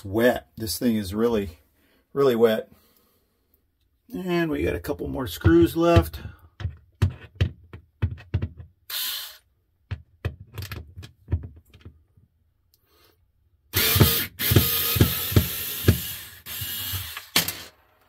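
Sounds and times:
regular knocking: 5.4s - 8.8s, 9.9s - 12.0s
cordless drill running: 8.9s - 9.4s, 13.7s - 17.7s.

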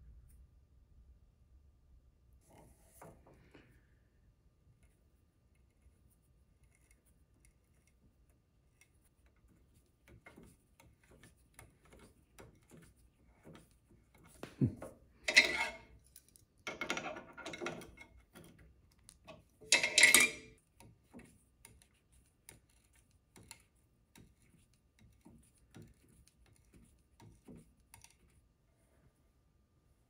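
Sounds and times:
metal fitting scraping and creaking: 15.2s - 16.0s, 16.7s - 18.6s, 19.2s - 20.6s.

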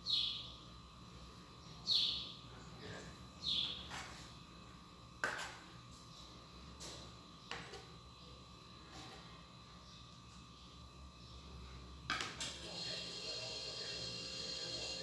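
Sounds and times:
bird chirping: 0.0s - 0.6s, 1.6s - 2.4s, 3.4s - 3.8s
faint steady hum: 0.0s - 15.0s.

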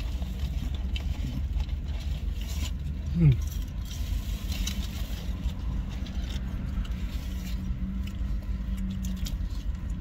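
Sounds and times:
faint clicks and rustles: 0.0s - 10.0s.

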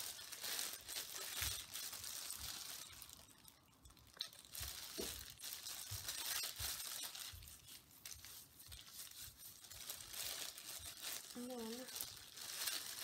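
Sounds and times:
plastic sheet and gloves crinkling: 0.0s - 13.0s.

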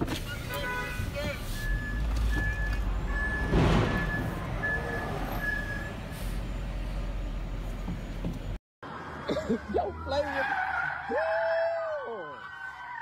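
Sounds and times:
truck reversing alarm beeping: 1.5s - 8.6s.

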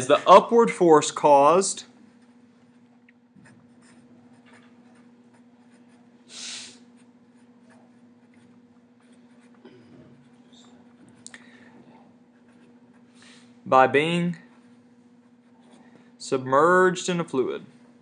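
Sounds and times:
marker writing on paper: 3.4s - 6.1s.

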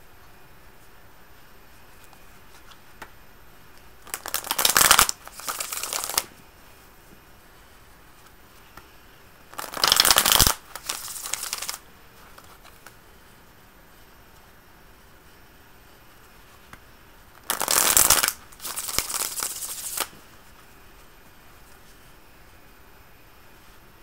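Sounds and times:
cards being shuffled: 4.0s - 6.3s, 9.5s - 12.9s, 17.4s - 20.2s.

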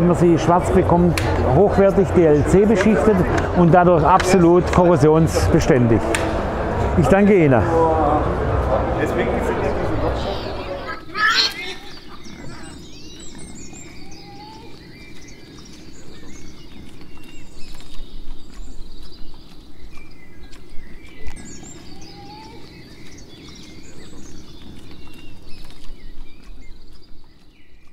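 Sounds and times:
steady low rumble: 0.0s - 26.9s
bird chirps: 10.2s - 27.9s.

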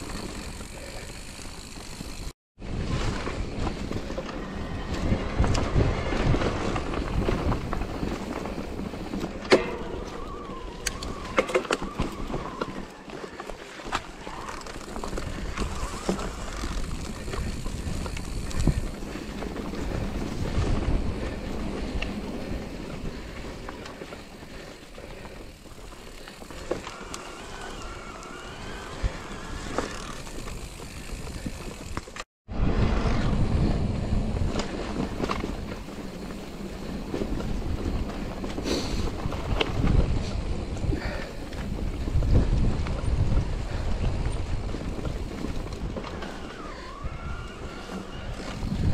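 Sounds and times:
tyres rolling over dry ground: 0.0s - 48.9s
wind buffeting microphone: 2.6s - 13.0s, 14.8s - 48.9s.

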